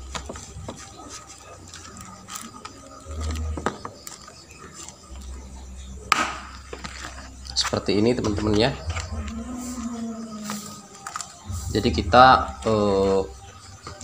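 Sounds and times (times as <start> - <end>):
plastic parts clicking and scraping: 10.4 - 11.4.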